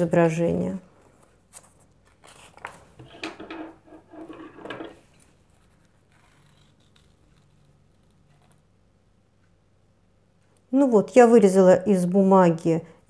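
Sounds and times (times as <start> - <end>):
paper sheets rustling: 1.0 - 3.0.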